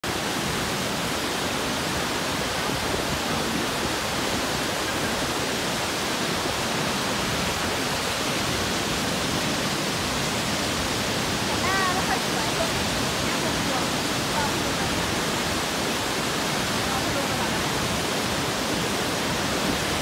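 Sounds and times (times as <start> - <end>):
waterfall rushing water: 0.0 - 20.0.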